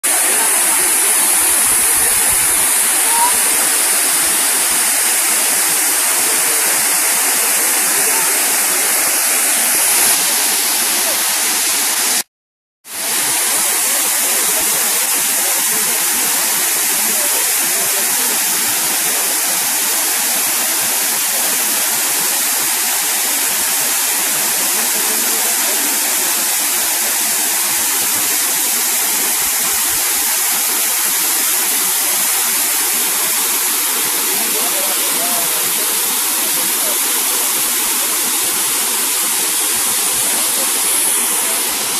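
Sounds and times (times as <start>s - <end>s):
waterfall rushing into pool: 0.0s - 12.3s, 12.9s - 41.9s.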